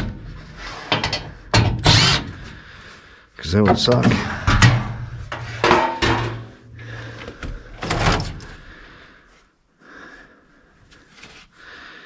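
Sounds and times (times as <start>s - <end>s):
metal panel clanking and scraping: 0.0s - 2.4s, 3.6s - 6.6s.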